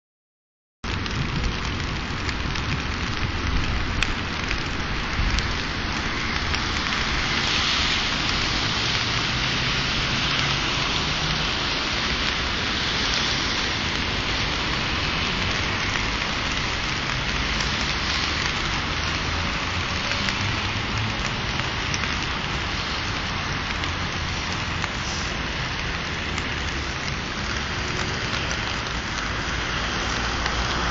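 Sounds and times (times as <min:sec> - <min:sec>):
rain hissing: 0:00.8 - 0:30.9.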